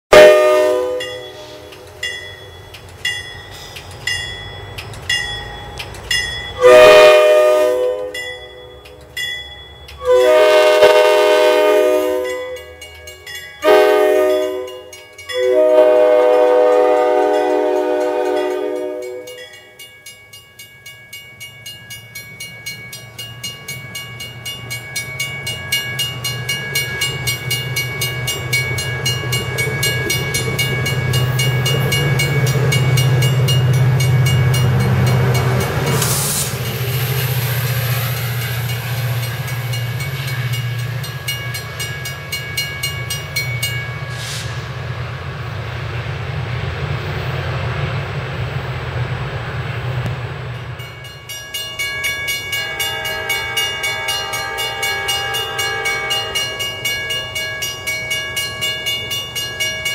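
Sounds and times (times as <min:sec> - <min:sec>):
train air horn blasts: 0:00.1 - 0:01.9, 0:06.6 - 0:08.6, 0:10.0 - 0:12.7, 0:13.6 - 0:19.4, 0:52.6 - 0:56.7
train rumble: 0:00.1 - 0:59.9
wheels clicking over rail joints: 0:01.0 - 0:06.6.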